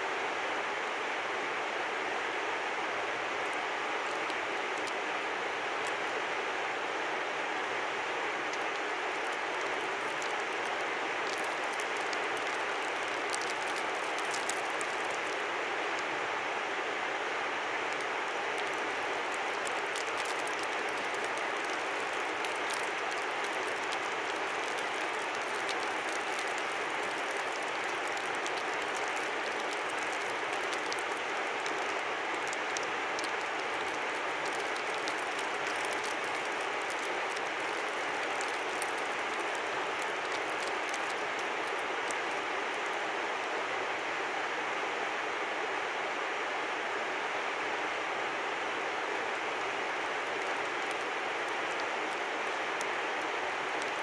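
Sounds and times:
crisp high ticks: 8.5s - 15.4s, 18.6s - 42.9s.

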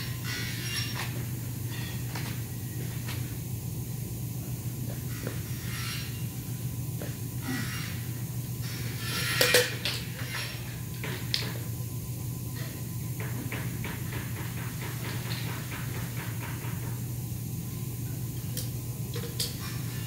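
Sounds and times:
low workshop hum: 0.0s - 20.0s.

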